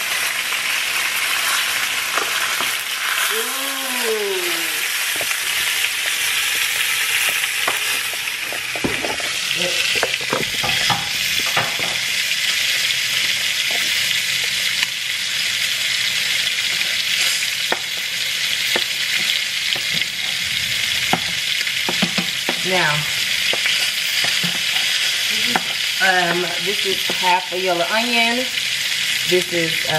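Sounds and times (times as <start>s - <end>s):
grease sizzling in a frying pan: 0.0s - 29.9s
metal spoon stirring in a pot: 7.0s - 12.2s, 23.4s - 26.5s.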